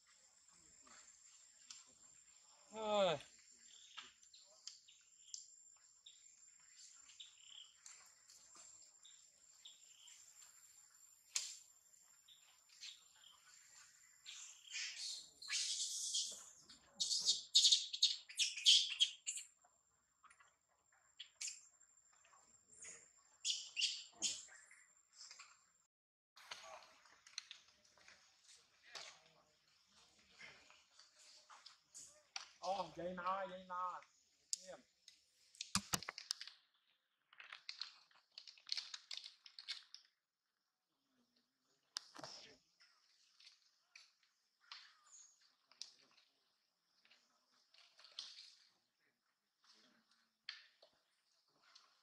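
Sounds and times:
dry crackling and crunching clicks: 0:37.3 - 0:40.1.

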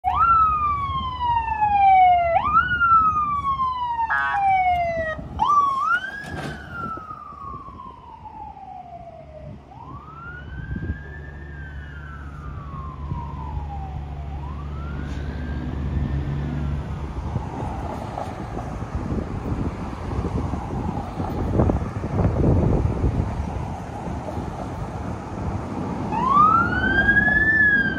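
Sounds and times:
electronic sirens wailing: 0:00.0 - 0:18.8, 0:26.0 - 0:27.9
softer siren wail: 0:00.0 - 0:25.4, 0:26.0 - 0:27.9.

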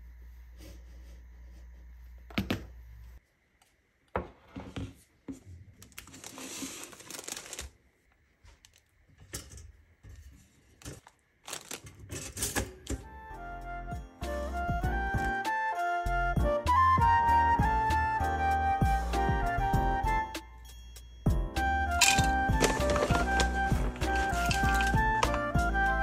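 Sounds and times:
plastic bread bag crinkling: 0:05.8 - 0:08.9, 0:10.8 - 0:12.4, 0:22.0 - 0:25.5.

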